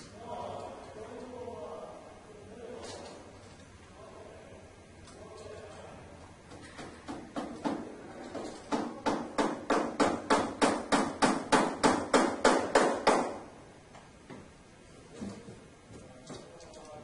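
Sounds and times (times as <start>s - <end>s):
hammer tapping nail into wood: 6.5s - 13.4s.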